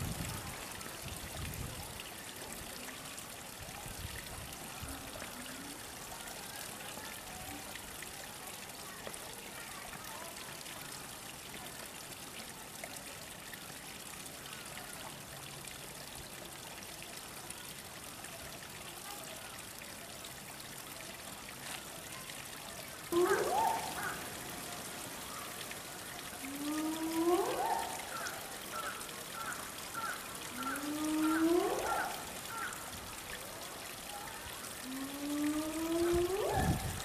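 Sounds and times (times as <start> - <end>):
water trickling: 0.0 - 37.0
rising pitched calls: 23.1 - 24.3, 26.5 - 28.3, 30.0 - 32.7.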